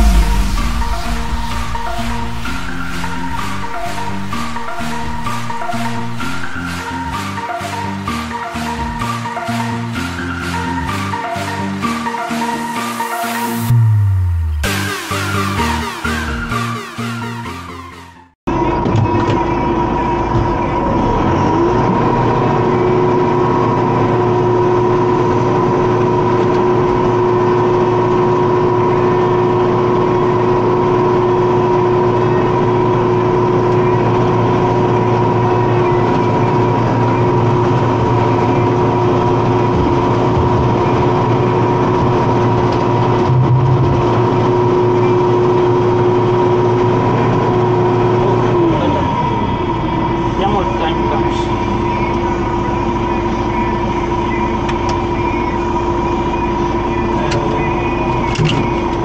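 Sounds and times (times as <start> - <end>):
tractor engine running: 18.5 - 59.0
flail mower high whine: 19.6 - 58.2.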